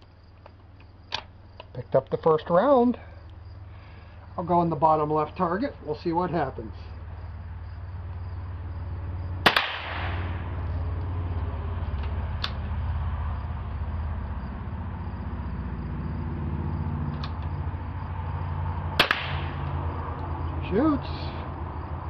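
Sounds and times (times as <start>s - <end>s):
steady low rumble: 0.0s - 22.0s
rifle shot: 9.4s - 10.4s, 19.0s - 19.6s.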